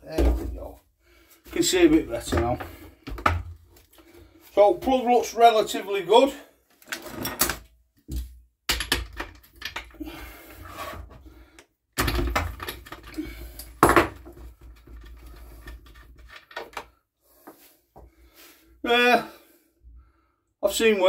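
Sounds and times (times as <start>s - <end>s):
tools and metal parts clattering: 8.7s - 10.0s, 12.0s - 16.8s.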